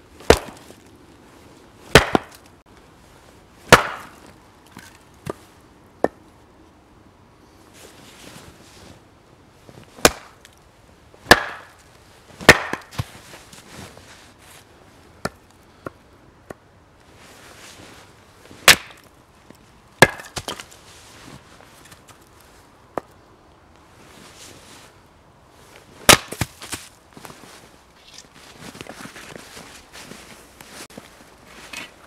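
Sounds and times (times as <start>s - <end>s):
axe chopping wood: 0.2s - 0.7s, 1.9s - 2.4s, 3.7s - 4.2s, 10.0s - 10.4s, 11.3s - 11.8s, 12.4s - 13.1s, 18.6s - 19.1s, 20.0s - 20.7s, 26.1s - 26.8s.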